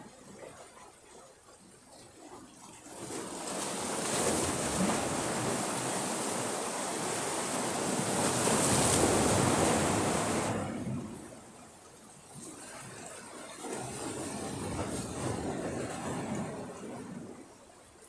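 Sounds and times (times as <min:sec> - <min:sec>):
surf washing against shore: 0:02.9 - 0:11.7.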